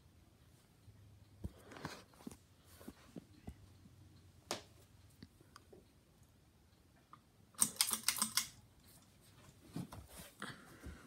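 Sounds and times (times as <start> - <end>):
fan clicking and rattling: 7.6 - 9.0.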